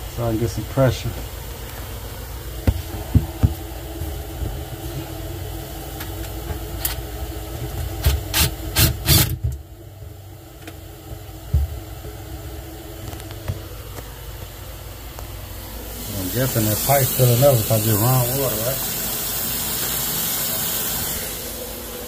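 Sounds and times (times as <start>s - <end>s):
steady low hum: 0.0s - 22.0s
sharp knocks and clatters: 2.6s - 3.6s
water running into sink drain: 16.0s - 21.1s.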